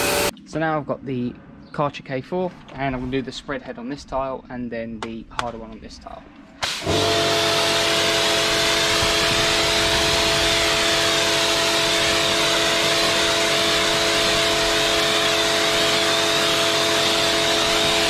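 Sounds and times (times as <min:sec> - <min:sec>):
pressure washer motor humming: 0:00.0 - 0:00.3, 0:06.6 - 0:18.0.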